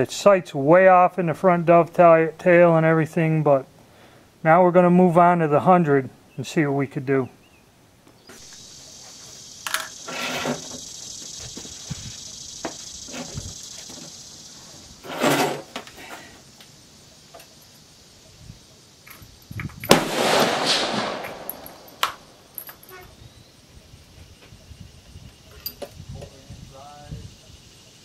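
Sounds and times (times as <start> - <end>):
steady high buzz: 8.3 - 25.8
knocks and scrapes at a bench: 10.1 - 10.8, 15.0 - 16.2.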